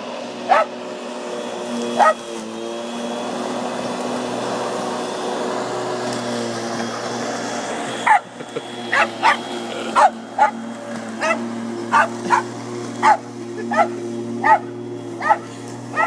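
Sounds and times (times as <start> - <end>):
electric lawnmower motor humming: 0.0 - 16.0
dog barking: 0.5 - 0.7, 2.0 - 2.2, 8.0 - 8.3, 8.9 - 9.4, 10.0 - 10.6, 11.2 - 12.4, 13.0 - 16.0.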